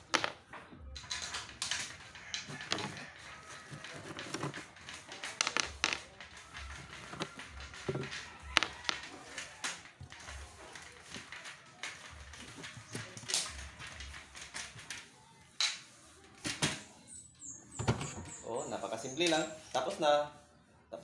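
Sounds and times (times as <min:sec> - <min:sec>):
aluminium parts clicking and knocking: 0:00.0 - 0:15.9.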